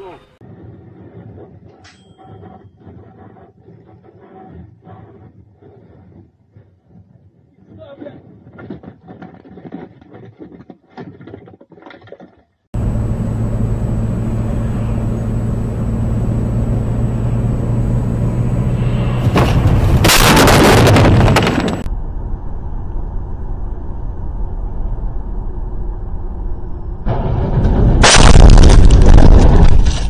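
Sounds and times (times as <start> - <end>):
car engine and road drone: 12.8 - 30.0
dull road noise: 12.8 - 30.0
loud crash: 18.6 - 21.9, 27.0 - 30.0.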